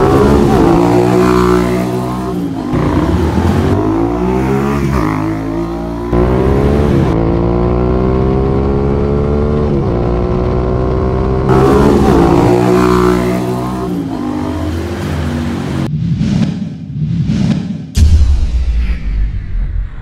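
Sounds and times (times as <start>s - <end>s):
motorcycle accelerating through gears: 0.0s - 15.9s.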